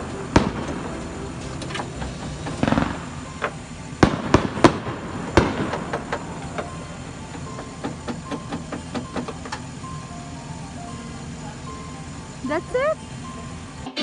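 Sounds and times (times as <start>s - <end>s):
firework crackling: 0.0s - 9.8s
firework bangs and pops: 0.2s - 1.0s, 2.0s - 6.8s.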